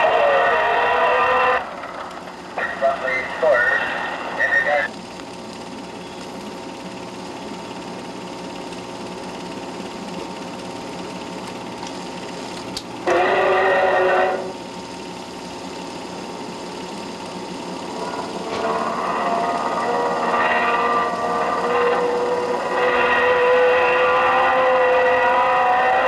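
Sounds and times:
mechanical whirring with hum: 0:00.0 - 0:26.0
loud pitched sound: 0:13.0 - 0:14.6, 0:17.8 - 0:26.0.

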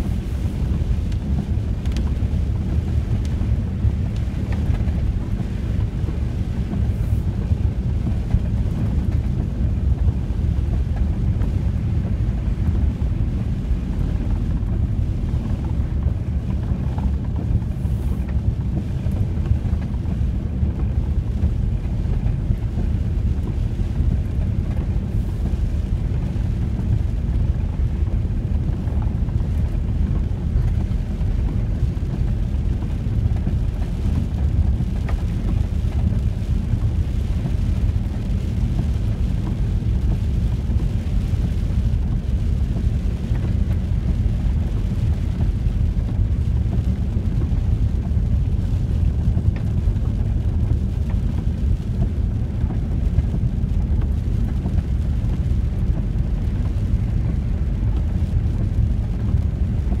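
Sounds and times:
van engine and tyres rumbling: 0:00.0 - 1:00.0.

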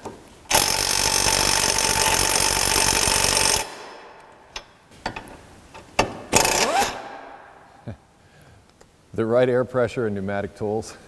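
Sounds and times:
electric impact wrench hammering: 0:00.5 - 0:04.0, 0:06.1 - 0:07.4.

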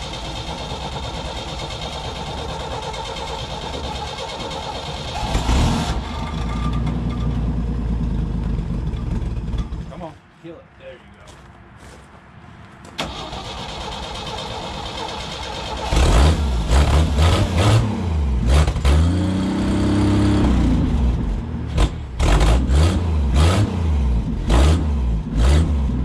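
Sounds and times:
engine revving: 0:03.0 - 0:09.9, 0:13.0 - 0:26.0.

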